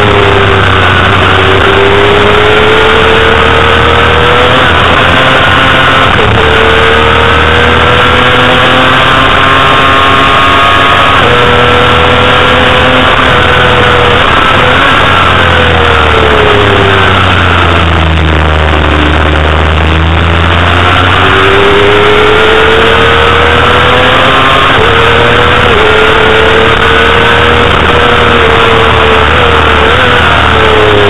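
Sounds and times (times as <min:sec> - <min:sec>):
heavy wind noise: 0:00.0 - 0:31.0
motorcycle engine at high revs: 0:00.0 - 0:31.0.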